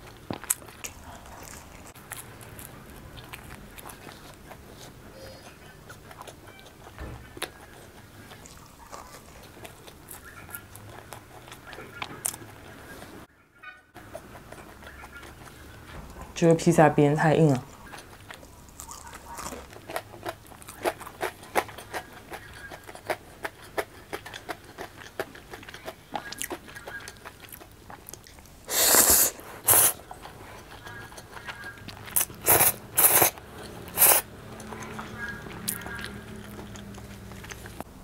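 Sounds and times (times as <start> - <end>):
crunchy chewing: 0.0 - 13.3, 14.0 - 16.2, 17.5 - 38.0
slurping spaghetti: 28.6 - 30.8, 32.1 - 34.3.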